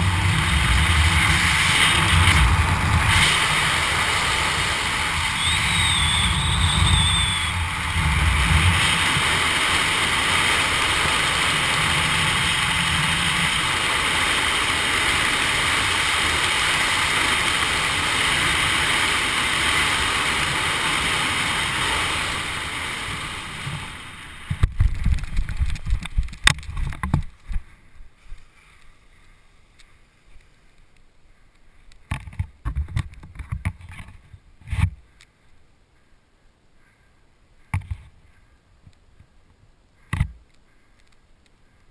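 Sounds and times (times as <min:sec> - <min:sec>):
wind rushing over microphone: 0:00.0 - 0:27.7.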